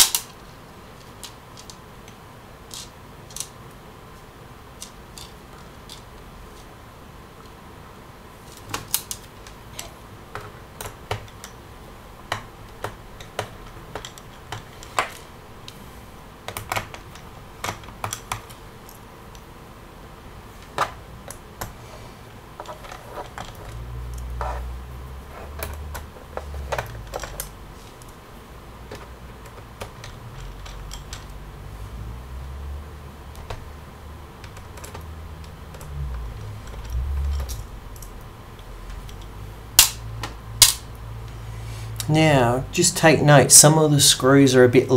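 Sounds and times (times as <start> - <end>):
low handling rumble: 30.2 - 44.4.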